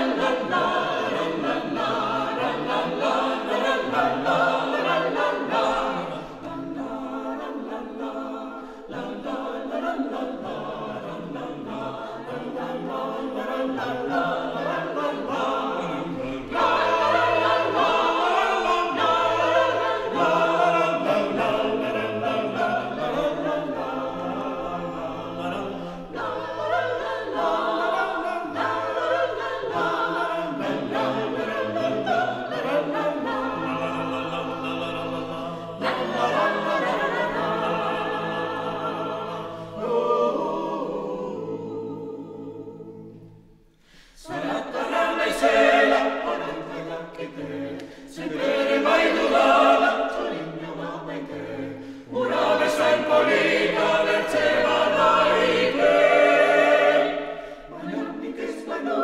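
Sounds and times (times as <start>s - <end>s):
choir singing a cappella: 0.0s - 59.0s.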